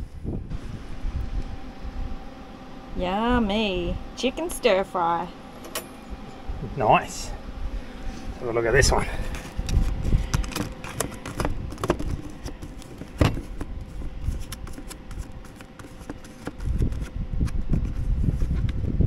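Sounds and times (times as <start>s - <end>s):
foil crinkling: 9.4s - 18.0s.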